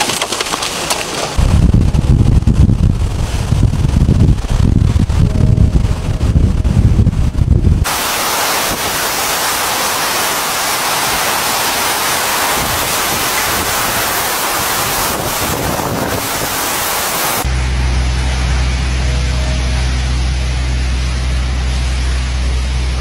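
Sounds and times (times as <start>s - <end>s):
hiss of hurricane wind: 1.2s - 17.5s
wind buffeting microphone: 1.3s - 17.5s
heavy driving rain: 1.3s - 19.0s
surging floodwater: 7.8s - 17.5s.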